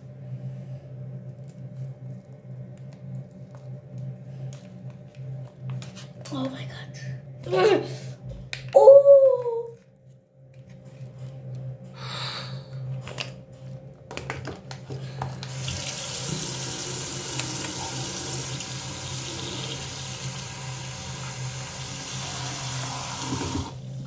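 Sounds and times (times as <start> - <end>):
tap running into sink: 15.4 - 18.8, 22.4 - 23.8.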